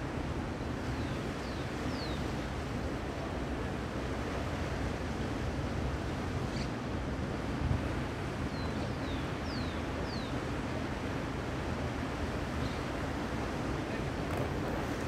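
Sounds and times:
wind buffeting microphone: 0:13.4 - 0:15.0.

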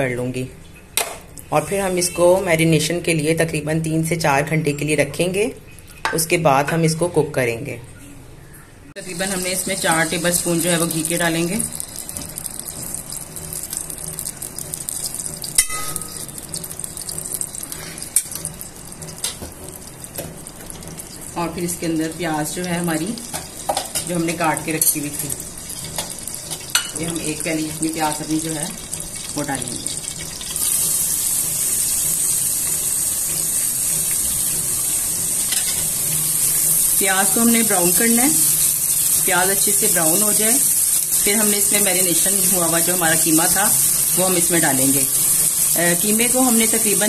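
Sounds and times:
ghee sizzling in a metal pot: 0:01.5 - 0:03.4, 0:09.0 - 0:47.0
metal spoon clinking on pot: 0:15.6 - 0:16.3.

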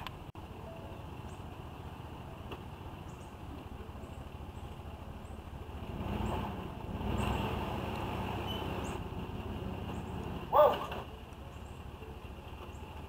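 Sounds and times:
motor vehicle passing by: 0:03.2 - 0:13.0.

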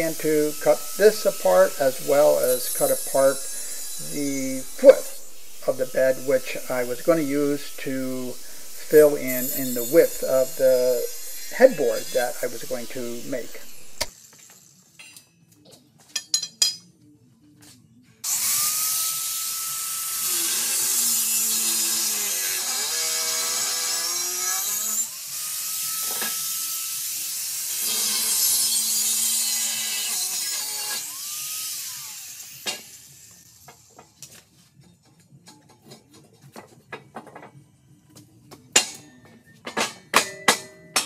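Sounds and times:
angle grinder cutting steel: 0:00.0 - 0:15.1, 0:18.2 - 0:34.2.

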